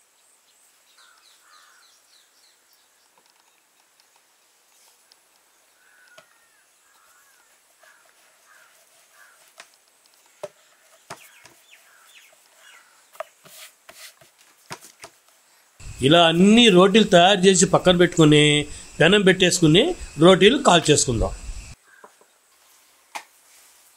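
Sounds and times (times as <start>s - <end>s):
birds chirping: 15.8s - 21.8s.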